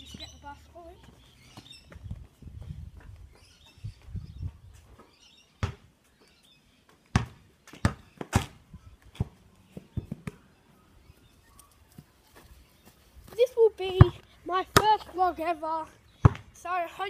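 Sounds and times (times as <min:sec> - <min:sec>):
basketball bouncing on hard ground: 0:01.0 - 0:03.2, 0:05.6 - 0:05.9, 0:07.1 - 0:10.4, 0:13.9 - 0:15.1, 0:16.2 - 0:16.6.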